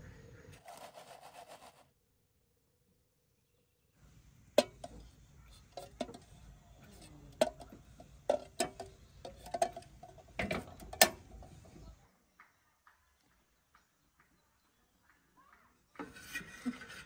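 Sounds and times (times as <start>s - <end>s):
clicks on metal kettle: 4.6s - 6.3s, 7.3s - 11.8s.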